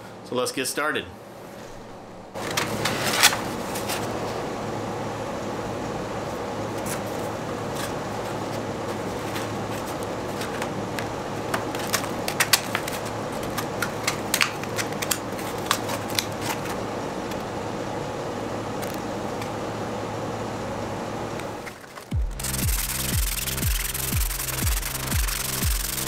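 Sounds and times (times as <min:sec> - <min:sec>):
steady background hum: 0:00.0 - 0:26.0
sandpaper crackling: 0:21.7 - 0:26.0.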